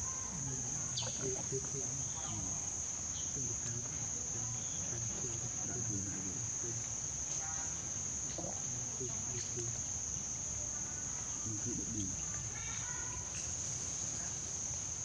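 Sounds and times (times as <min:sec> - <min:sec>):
insects chorus: 0:00.0 - 0:15.0.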